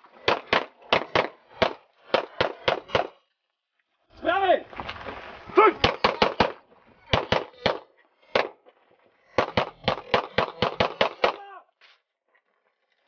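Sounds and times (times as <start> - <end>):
pistol shots: 0.2 - 3.2, 5.8 - 8.6, 9.3 - 11.5.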